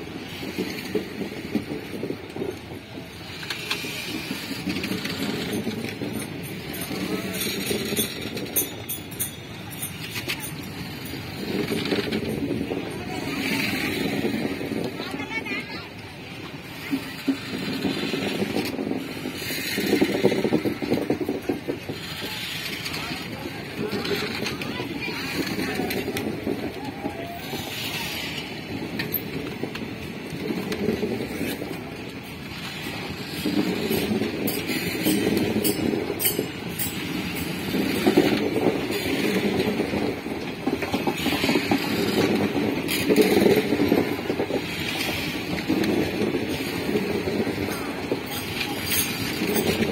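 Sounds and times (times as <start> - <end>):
train wheels clattering on track: 0.0 - 49.9.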